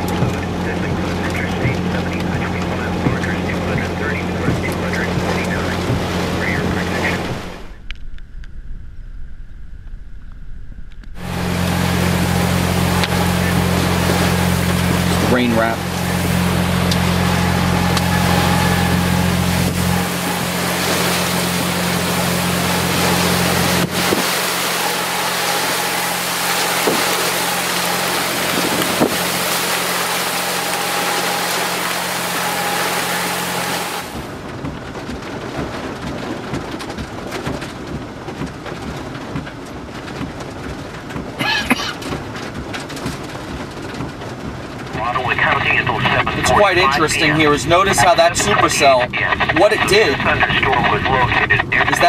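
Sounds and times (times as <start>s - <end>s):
heavy rain pouring: 0.0s - 8.8s, 10.5s - 52.0s
low hum: 0.0s - 35.0s.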